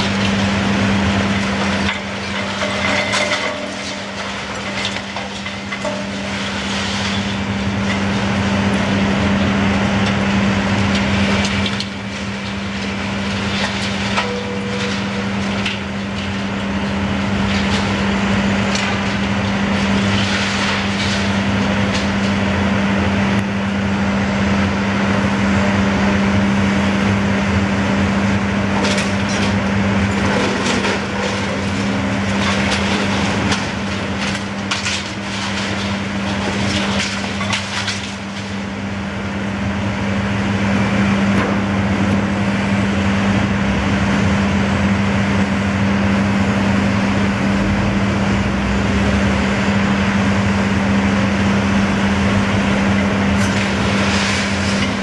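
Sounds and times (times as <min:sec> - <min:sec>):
masonry cracking and clattering: 0:00.0 - 0:22.6, 0:28.6 - 0:39.0, 0:52.8 - 0:55.0
diesel engine running: 0:00.0 - 0:55.0.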